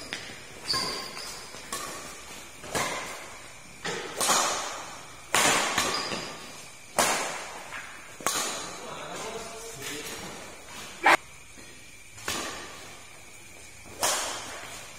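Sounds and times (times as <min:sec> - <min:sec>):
badminton racket hitting shuttlecock: 0:00.0 - 0:08.9, 0:12.2 - 0:13.0, 0:13.8 - 0:14.9.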